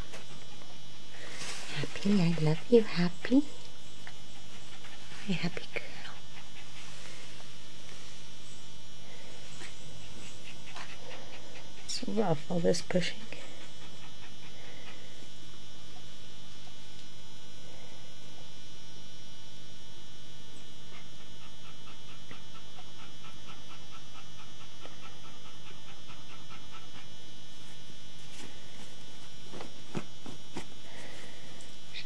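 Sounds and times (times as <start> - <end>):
electrical hum and hiss: 0.0 - 32.0
rustle: 1.2 - 2.2
dog making rhythmic mouth sounds: 20.9 - 27.1.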